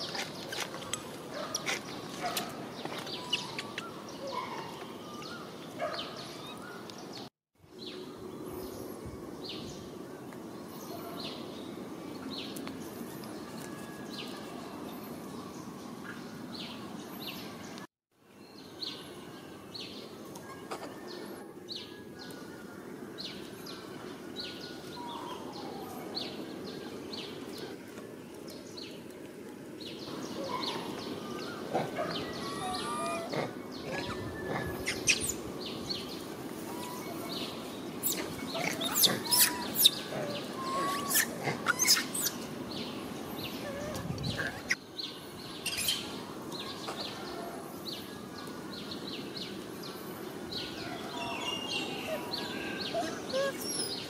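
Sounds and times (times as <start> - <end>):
small birds chirping: 0.0 - 54.0
background hiss: 34.6 - 54.0.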